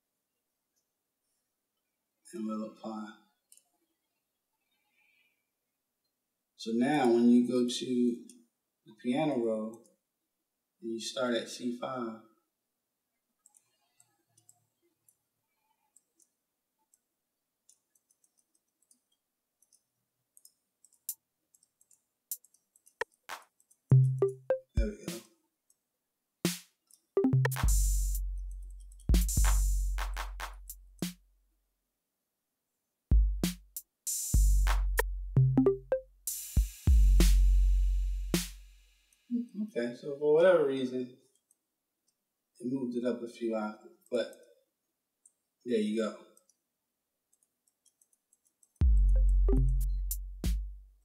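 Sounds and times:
computer mouse clicks: 13.4s - 15.2s, 15.9s - 16.3s, 17.7s - 19.8s, 20.4s - 23.9s, 47.3s - 48.8s.

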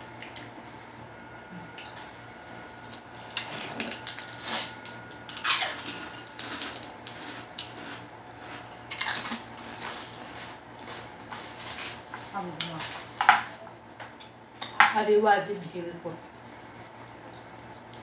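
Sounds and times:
aluminium foil crinkling: 2.9s - 12.9s
chewing and lip-smacking: 5.4s - 11.4s, 17.2s - 18.0s.

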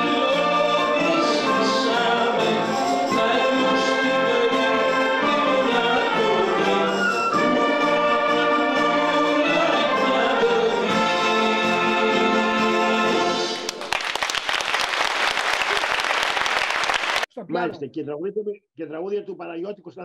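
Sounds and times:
wind band with brass playing: 0.0s - 13.7s
audience applause: 13.5s - 17.3s.

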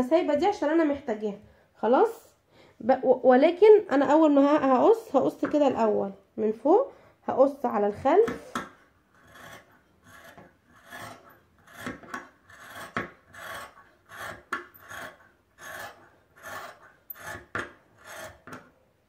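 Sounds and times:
scissors snipping fabric: 8.2s - 18.6s.

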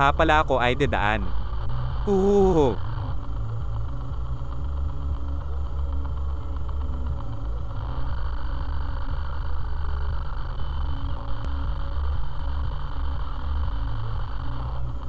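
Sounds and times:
even hiss: 2.0s - 2.8s.

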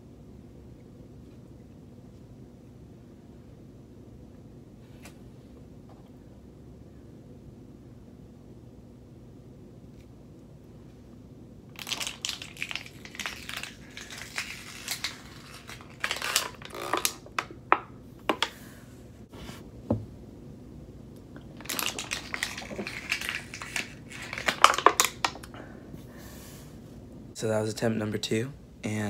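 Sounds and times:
plastic water bottle crinkling: 11.8s - 17.5s, 21.4s - 25.5s.

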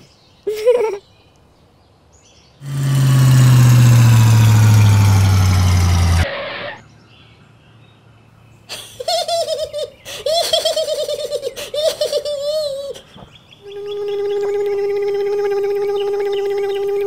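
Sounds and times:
loud truck engine: 2.6s - 6.8s.

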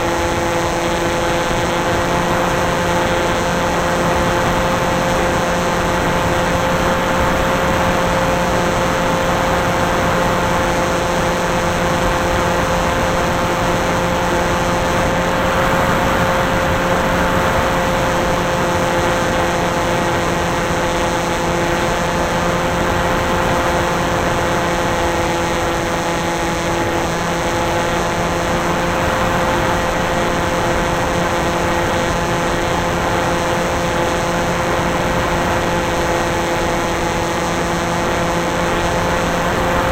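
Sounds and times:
electric motor and propeller whine: 0.0s - 39.9s.

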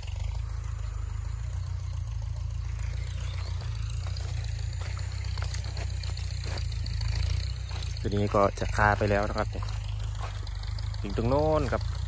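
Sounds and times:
steady low rumble: 0.0s - 12.0s
footsteps through dry leaves: 2.7s - 10.9s.

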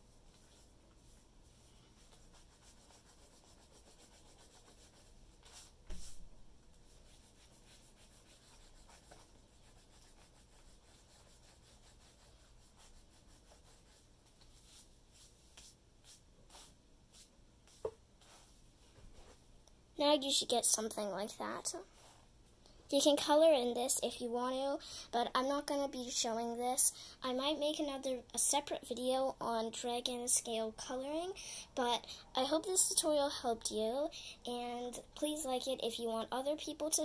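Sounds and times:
eraser rubbing on paper: 0.3s - 6.2s, 6.8s - 18.6s.

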